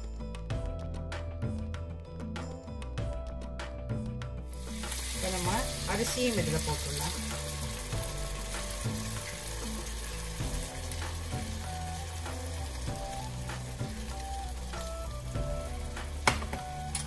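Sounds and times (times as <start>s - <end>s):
sizzling in hot oil: 4.4s - 17.0s.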